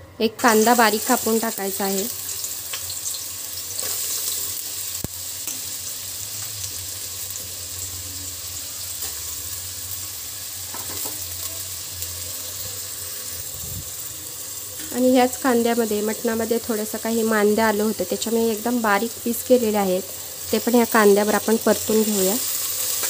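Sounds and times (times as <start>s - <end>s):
onion sizzling in hot oil: 0.4s - 23.0s.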